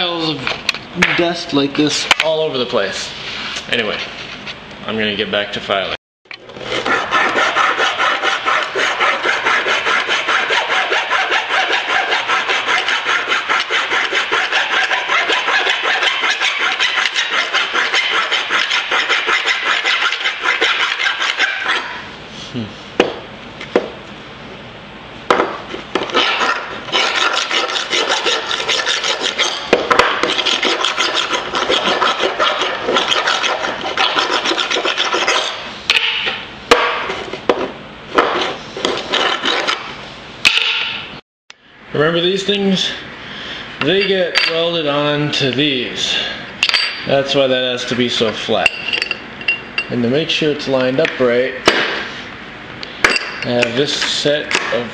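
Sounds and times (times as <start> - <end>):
file rasping on metal: 6.6 - 22.0, 26.0 - 36.2, 38.3 - 39.9.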